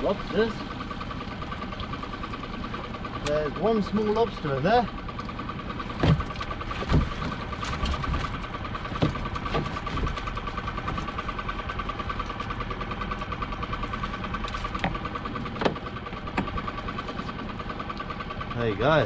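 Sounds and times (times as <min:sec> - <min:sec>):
boat engine idling: 0:00.0 - 0:19.0
knocks against boat side: 0:06.0 - 0:08.3, 0:08.9 - 0:10.3, 0:15.6 - 0:16.6.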